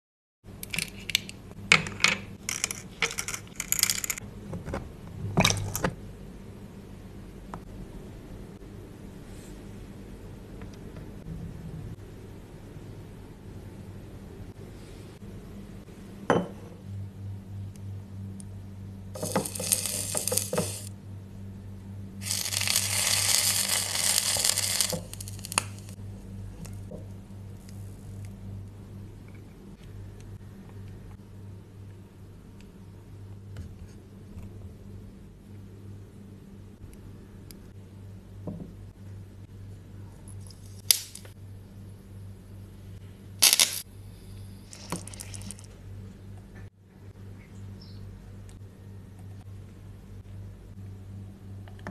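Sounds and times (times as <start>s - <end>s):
batter sizzling in hot oil: 19.2s - 20.9s, 22.2s - 26.0s
dry grains rattling into bowl: 19.2s - 20.9s, 22.2s - 26.0s.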